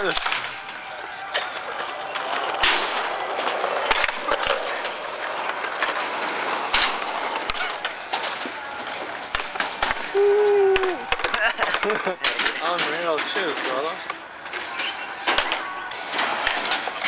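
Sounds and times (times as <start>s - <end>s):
skateboard wheels rolling on concrete: 0.0s - 17.0s
skateboards clacking on ground: 0.0s - 17.0s.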